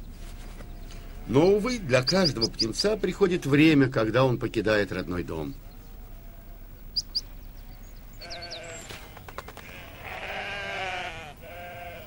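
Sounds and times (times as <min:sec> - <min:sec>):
ducklings peeping: 0:00.0 - 0:10.1
sheep bleating: 0:08.2 - 0:08.9, 0:09.6 - 0:12.0.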